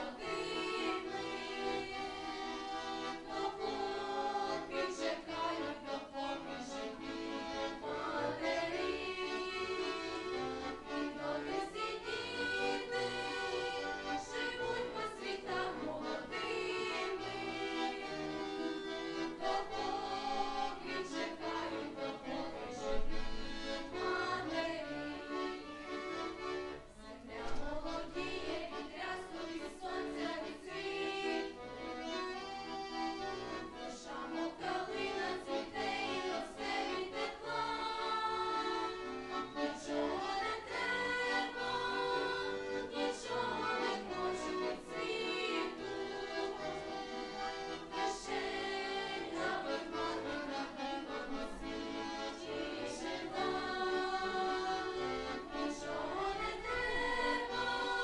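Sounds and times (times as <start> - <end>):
girls singing together: 0.0 - 6.2, 7.7 - 18.4, 19.0 - 22.9, 23.8 - 25.7, 27.1 - 31.6, 33.7 - 51.6, 52.2 - 58.0
instrumental accompaniment: 0.0 - 58.0.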